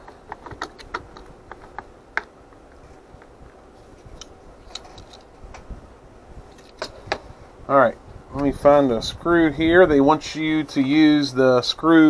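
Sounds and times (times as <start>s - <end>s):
plastic parts clicking and tapping: 0.0s - 3.4s.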